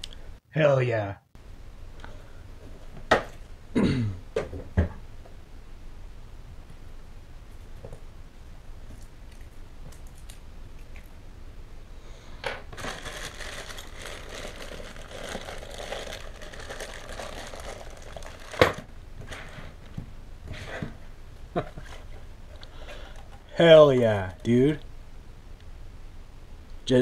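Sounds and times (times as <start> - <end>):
plastic wrapping crinkling: 12.7 - 19.4.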